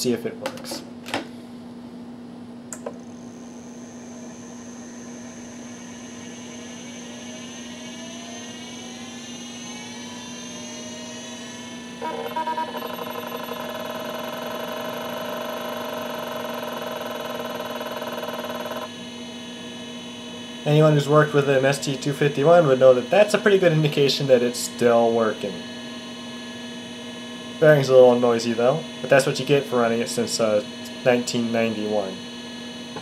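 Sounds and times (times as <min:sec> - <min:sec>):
hard drive whine: 0:01.1 - 0:33.0
hard drive head seek chatter: 0:12.0 - 0:18.9.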